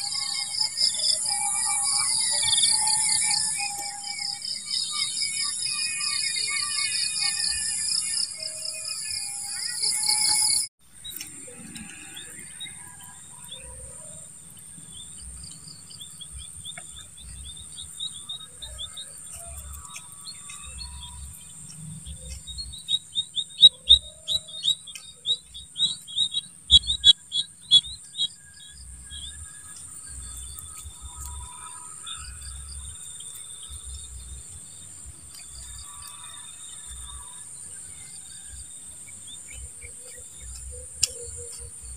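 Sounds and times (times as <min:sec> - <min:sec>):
repeated chirps: 0:00.0 - 0:11.3, 0:16.7 - 0:28.6
high-pitched insect drone: 0:00.0 - 0:41.9.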